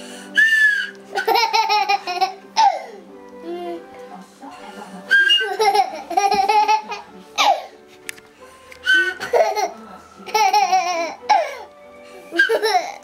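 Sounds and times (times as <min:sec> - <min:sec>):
toddler laughing through toy recorder: 0:01.1 - 0:02.4, 0:05.4 - 0:07.5, 0:12.3 - 0:13.0.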